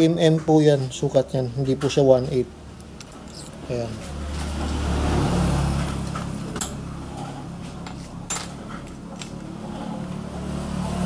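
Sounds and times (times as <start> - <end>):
small metal parts clinking: 2.7 - 3.6, 7.8 - 9.4.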